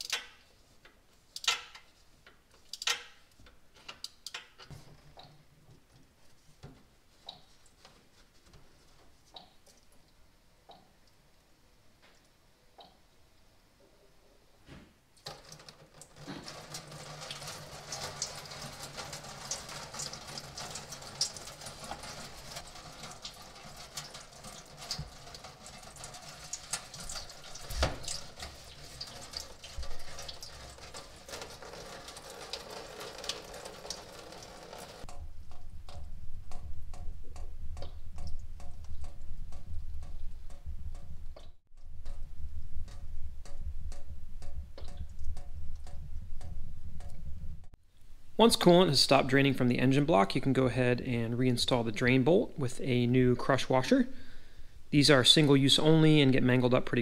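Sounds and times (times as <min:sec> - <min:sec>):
liquid splashing into metal pan: 0:15.2 - 0:35.2.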